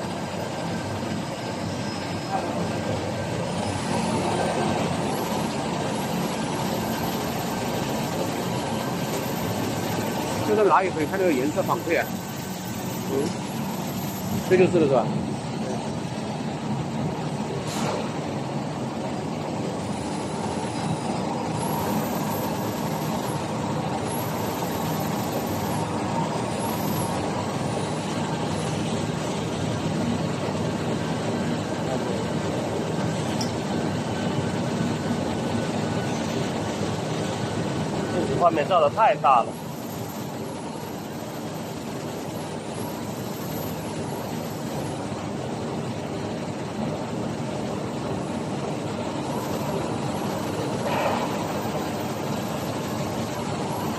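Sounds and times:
printing press hum and whir: 0.0s - 53.9s.

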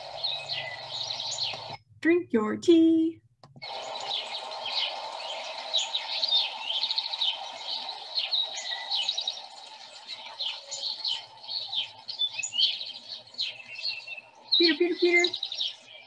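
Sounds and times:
songbirds chirping: 0.0s - 16.0s
steady background rush: 3.6s - 12.1s.

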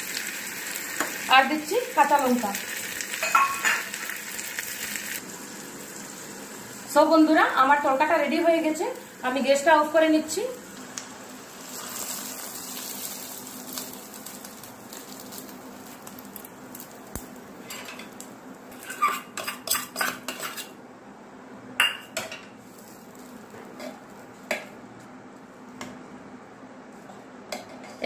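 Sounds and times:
hot oil sizzling: 0.0s - 20.7s, 22.6s - 24.4s
steel pan clinking on cooker: 3.2s - 3.9s.

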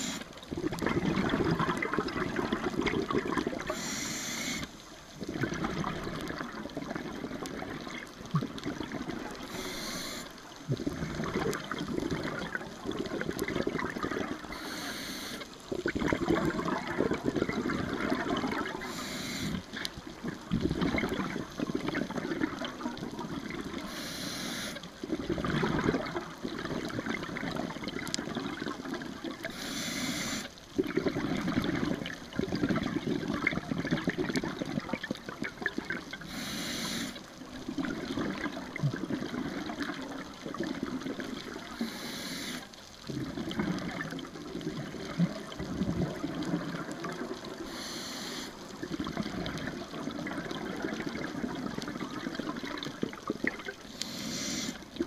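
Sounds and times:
regulator inhale hiss: 0.0s - 0.3s, 3.6s - 4.8s, 9.4s - 10.5s, 14.5s - 15.6s, 18.8s - 19.7s, 23.8s - 24.9s, 29.5s - 30.6s, 36.2s - 37.3s, 41.7s - 42.8s, 47.6s - 48.7s, 53.9s - 54.8s
exhaled bubbles rumbling: 0.0s - 4.0s, 4.6s - 9.8s, 10.4s - 14.7s, 15.5s - 24.0s, 24.9s - 29.6s, 30.7s - 36.4s, 37.3s - 42.0s, 42.9s - 47.8s, 48.6s - 54.0s.

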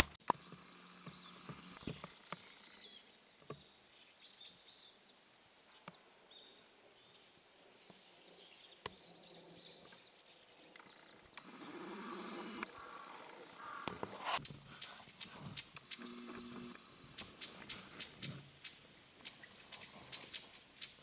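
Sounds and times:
small birds chirping: 0.0s - 21.0s.

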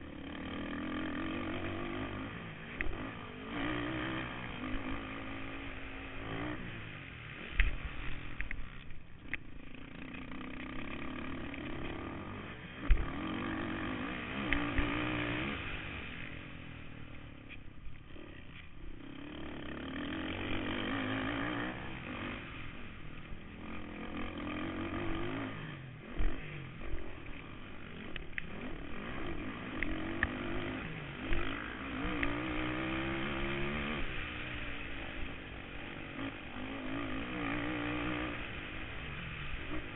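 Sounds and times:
quad bike engine revving: 0.0s - 39.9s
sharp knocks on rough track: 12.8s - 13.1s.

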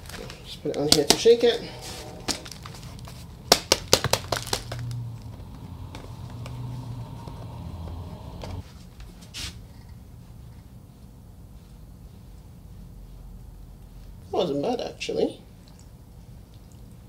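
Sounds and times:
low steady hum: 0.0s - 17.0s
plant pot knocking and rattling: 2.5s - 5.0s.

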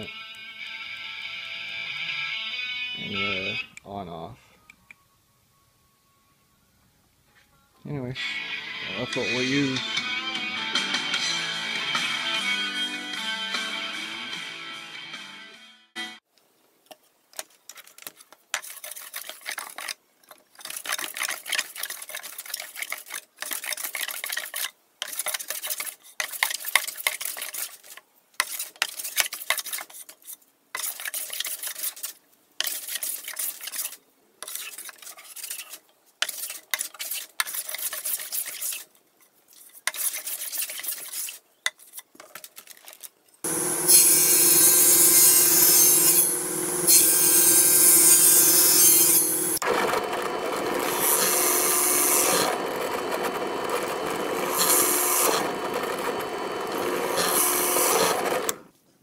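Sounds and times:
hand plane shaving wood: 43.5s - 58.6s
table saw running: 43.5s - 58.6s.

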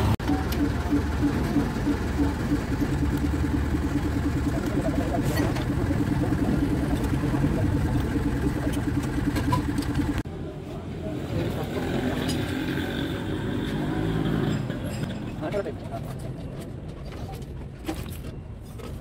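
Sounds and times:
engine idling: 0.0s - 10.2s.

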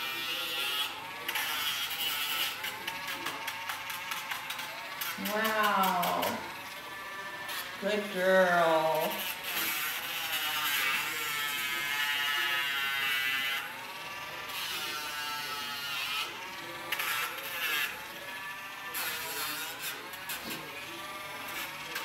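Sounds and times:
rotary nail grinder buzzing: 0.0s - 22.0s.

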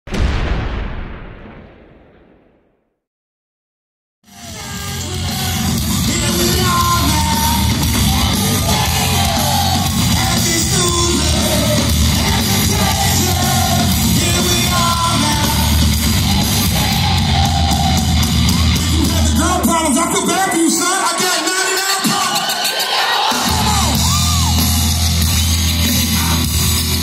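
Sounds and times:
person singing: 4.3s - 15.8s
live rock band playing: 4.4s - 20.2s, 23.4s - 27.0s.

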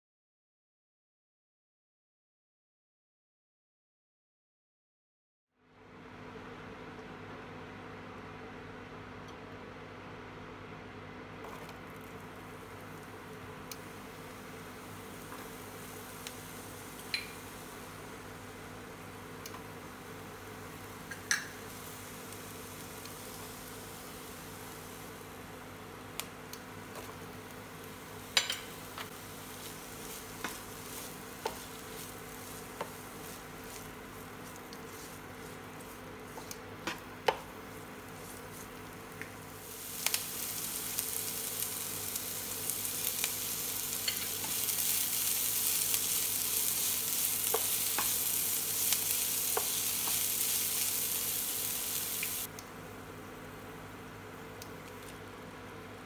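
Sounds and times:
food sizzling in pan: 11.4s - 52.5s.

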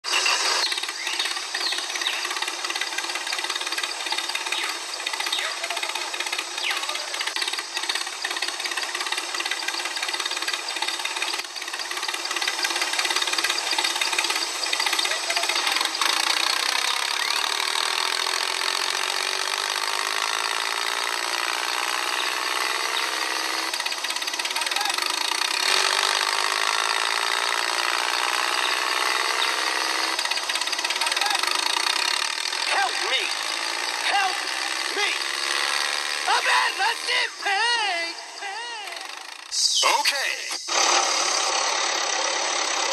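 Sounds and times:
toy motor and gears whirring: 0.0s - 42.9s.

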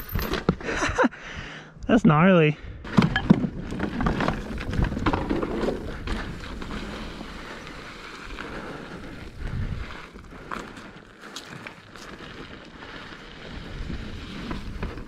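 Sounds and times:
bike rattling over rough ground: 0.0s - 1.0s, 2.8s - 15.0s
tyre noise rushing: 3.1s - 15.0s.

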